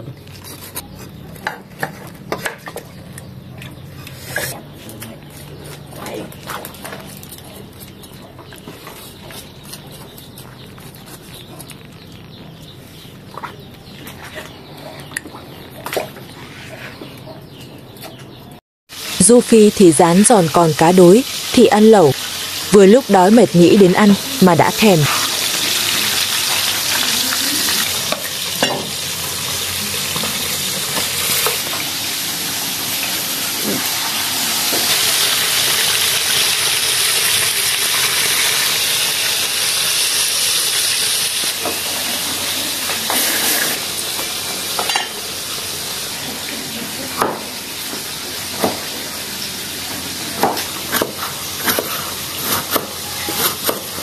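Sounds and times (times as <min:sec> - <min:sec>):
fish sizzling in hot oil: 0:18.9 - 0:19.2, 0:21.0 - 0:22.8, 0:24.5 - 0:54.0.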